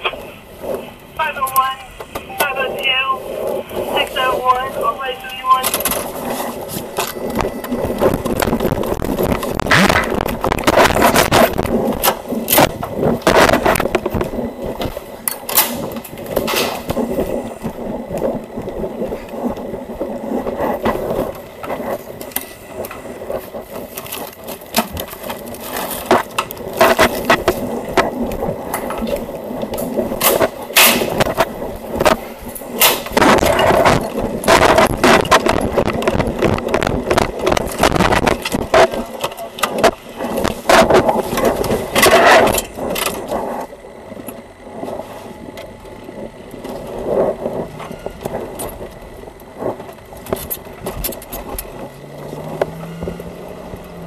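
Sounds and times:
footsteps: 0:00.2 - 0:42.1
camera rubbing against clothing: 0:02.4 - 0:15.2.

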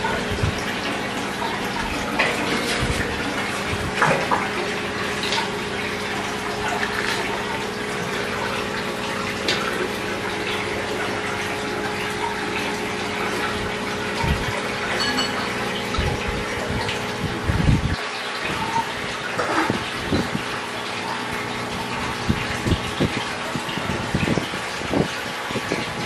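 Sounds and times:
water rushing and bubbling: 0:00.0 - 0:26.0
low steady hum: 0:14.9 - 0:16.9.

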